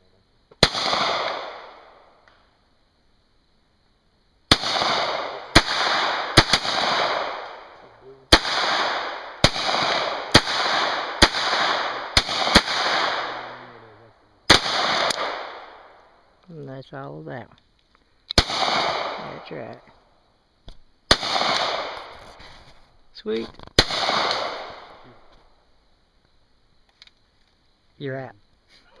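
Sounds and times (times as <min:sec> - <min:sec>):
pistol shots with echo: 0:00.6 - 0:01.9, 0:04.5 - 0:13.6, 0:14.5 - 0:15.9, 0:18.4 - 0:19.4, 0:21.1 - 0:22.0, 0:23.8 - 0:25.0.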